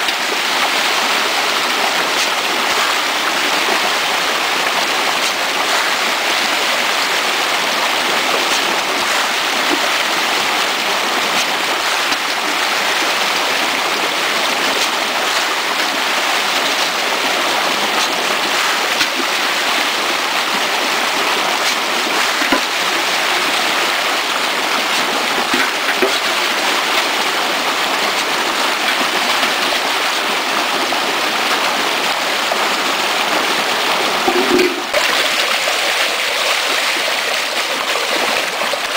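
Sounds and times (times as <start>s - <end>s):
fish splashing in water: 0.1s - 30.3s.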